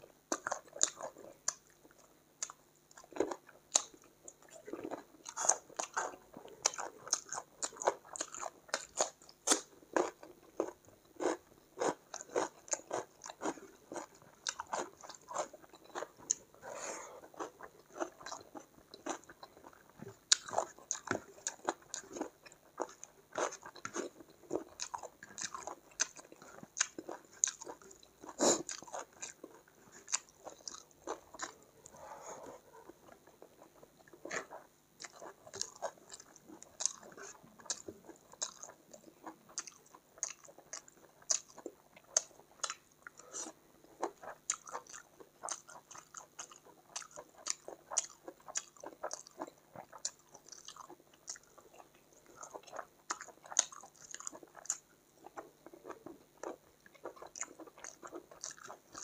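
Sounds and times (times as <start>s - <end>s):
chewing food: 0.0s - 59.0s
crisp chewing crunches: 0.3s - 59.0s.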